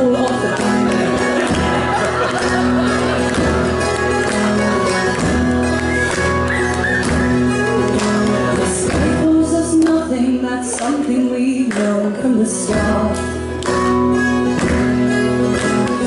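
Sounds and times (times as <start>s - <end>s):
woman singing: 0.0s - 0.8s, 8.9s - 13.6s
small stringed instrument: 0.0s - 10.9s, 12.2s - 16.0s
strummed acoustic guitar: 0.0s - 16.0s.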